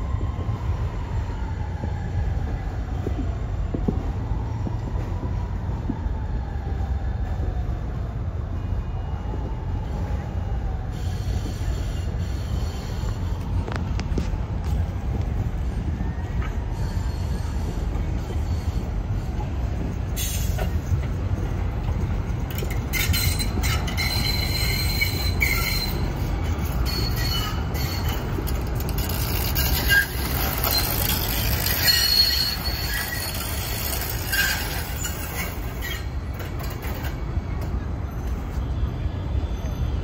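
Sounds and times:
train rumbling: 0:00.0 - 0:40.0
train wheels squealing: 0:08.6 - 0:13.6, 0:15.4 - 0:40.0.

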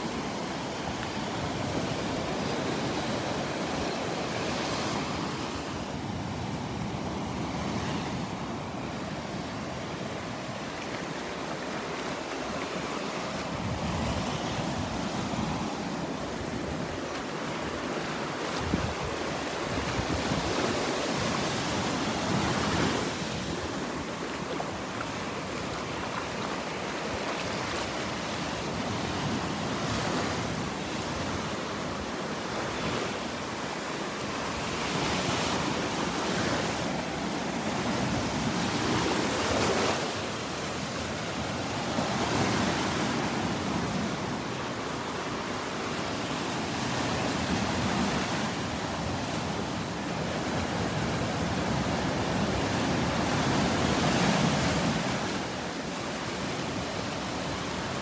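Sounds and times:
wind on microphone: 0:13.2 - 0:25.0.

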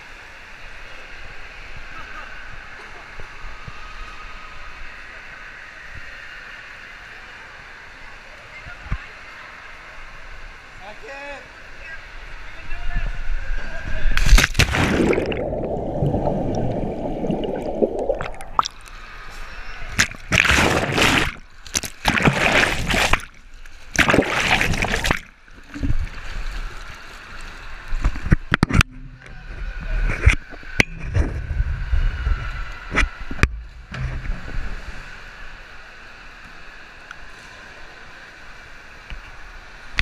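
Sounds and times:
water sloshing: 0:14.2 - 0:28.6
water splashing: 0:14.2 - 0:28.8.

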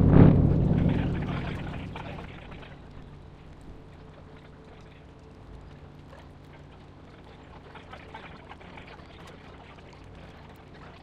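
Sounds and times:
fireworks crackling and booming: 0:00.0 - 0:02.6
faint steady background hum: 0:00.0 - 0:11.0.

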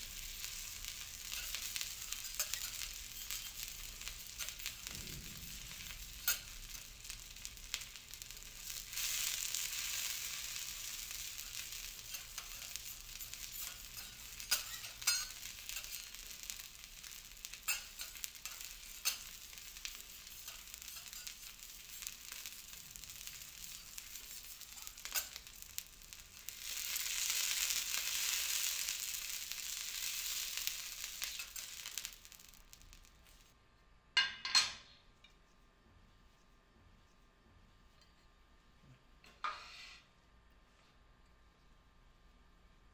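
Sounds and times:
food sizzling on a griddle: 0:00.0 - 0:33.6.

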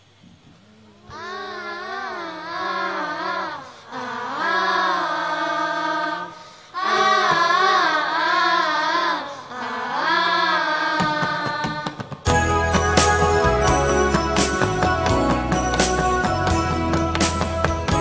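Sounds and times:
children singing together: 0:00.9 - 0:12.2.

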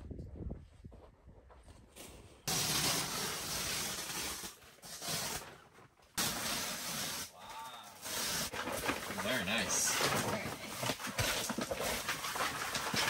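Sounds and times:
sleeping bags rustling and flapping: 0:07.0 - 0:13.0.

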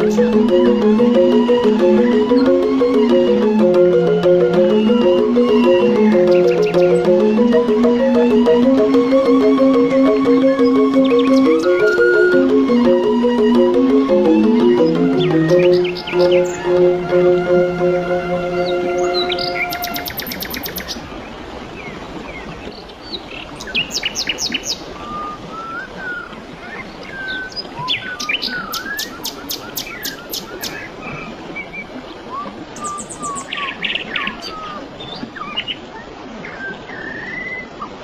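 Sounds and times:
music note: 0:00.0 - 0:20.2
flowing water: 0:00.0 - 0:38.0
birds chirping and whistling: 0:04.7 - 0:08.4, 0:09.2 - 0:13.0, 0:14.1 - 0:17.0, 0:18.5 - 0:21.0, 0:23.6 - 0:30.9, 0:31.6 - 0:37.8.

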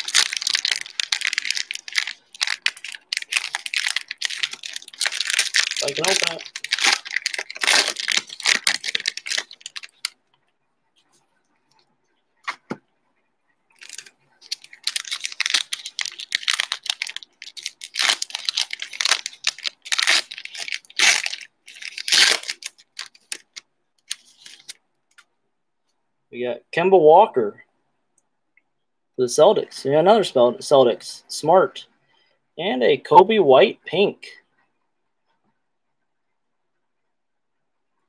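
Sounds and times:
plastic wrapper tearing and crinkling: 0:00.0 - 0:10.2, 0:13.8 - 0:24.8.

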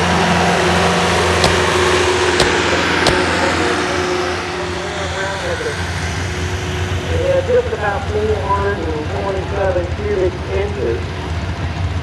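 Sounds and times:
tractor engine running loudly: 0:00.0 - 0:12.0
sharp clicks: 0:01.4 - 0:01.7, 0:02.4 - 0:03.3.

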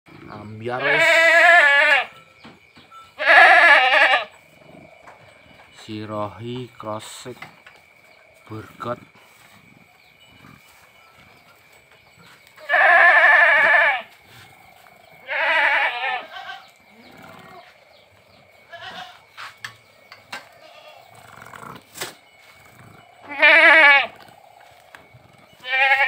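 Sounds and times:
goats bleating: 0:00.6 - 0:02.2, 0:03.2 - 0:04.4, 0:12.6 - 0:14.2, 0:15.2 - 0:17.8, 0:18.6 - 0:19.3, 0:20.5 - 0:21.3, 0:23.2 - 0:25.0, 0:25.6 - 0:26.0.

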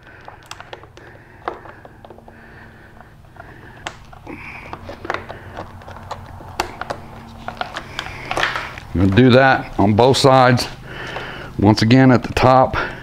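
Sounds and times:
pliers and connectors clicking: 0:00.0 - 0:02.3, 0:03.3 - 0:08.9
faint steady hum: 0:00.0 - 0:13.0.

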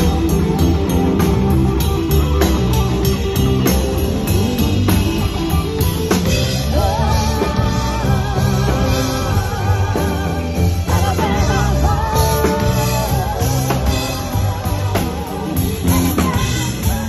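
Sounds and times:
live rock band playing: 0:00.0 - 0:17.0
voices singing: 0:06.2 - 0:17.0.

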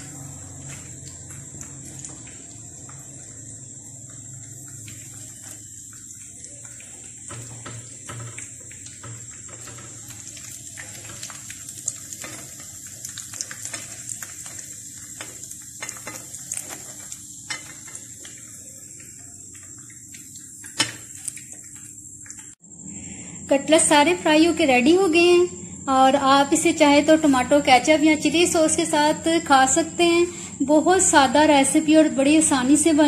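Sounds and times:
cutlets sizzling in hot oil: 0:00.0 - 0:22.6.

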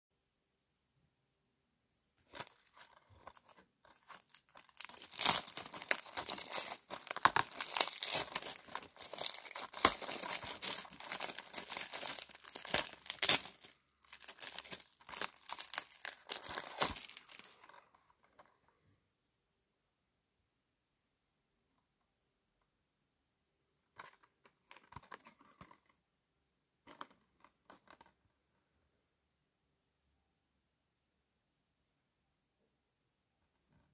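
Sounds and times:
plastic shrink-wrap crinkling: 0:02.2 - 0:17.8.

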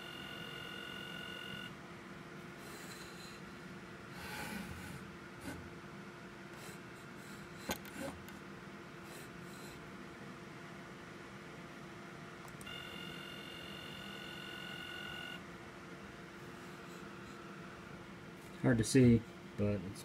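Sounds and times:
stepper motor whine: 0:00.0 - 0:01.7, 0:12.6 - 0:15.4.

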